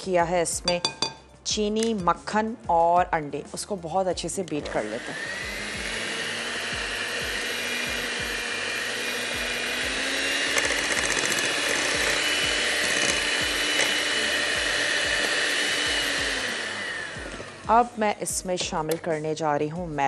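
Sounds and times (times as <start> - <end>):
electric mixer whining: 4.6 - 18.0.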